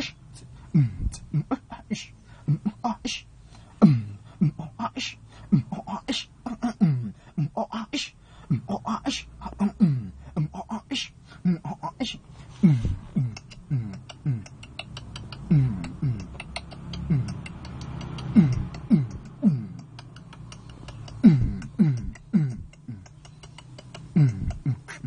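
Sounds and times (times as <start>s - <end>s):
beatboxing bass kicks: 0.0s - 3.2s, 3.8s - 25.0s
mouth clicks and ticks: 13.2s - 25.0s.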